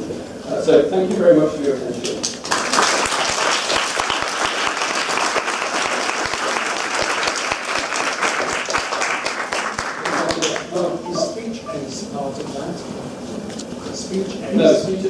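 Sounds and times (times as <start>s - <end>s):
audience applauding: 2.2s - 10.7s.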